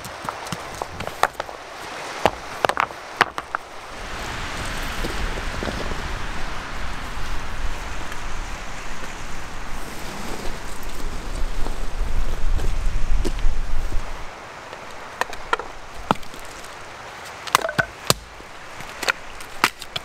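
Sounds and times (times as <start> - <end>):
stones knocking together: 0.0 - 1.6, 2.2 - 3.7, 15.2 - 16.8, 17.4 - 20.0
strong wind through forest: 0.0 - 20.0
wind rumble on microphone: 3.6 - 14.3.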